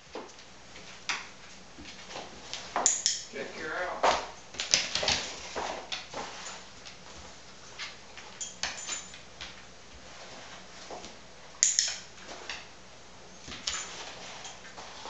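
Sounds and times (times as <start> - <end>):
dog pawing cardboard cartons: 0.0 - 8.3.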